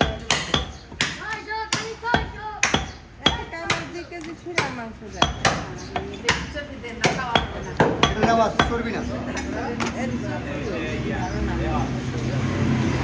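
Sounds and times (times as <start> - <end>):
cleaver chopping meat on wood: 0.0 - 8.9.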